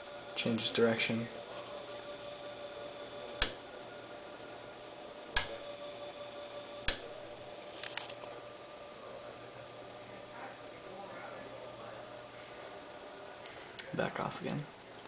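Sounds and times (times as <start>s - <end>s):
electric motor hum: 0.0s - 15.0s
relay clicks: 5.4s - 5.6s.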